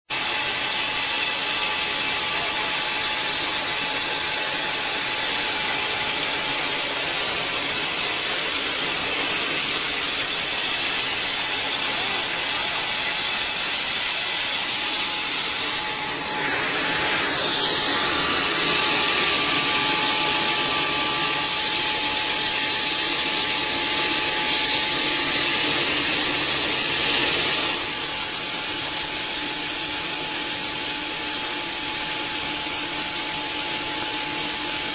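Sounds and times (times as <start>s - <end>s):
pneumatic conveyor air rush: 0.1s - 34.9s
high whine: 1.2s - 28.7s.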